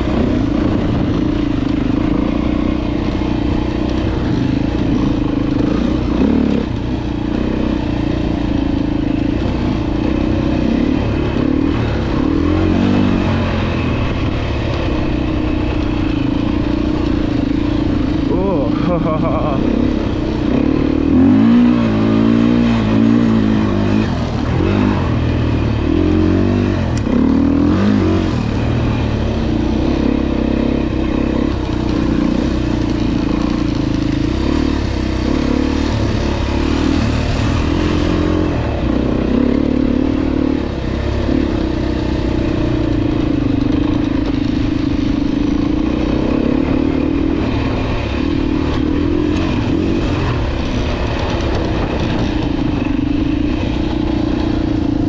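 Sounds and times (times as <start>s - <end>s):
dirt bike engine revving: 0.0s - 55.0s
wind noise: 40.6s - 55.0s.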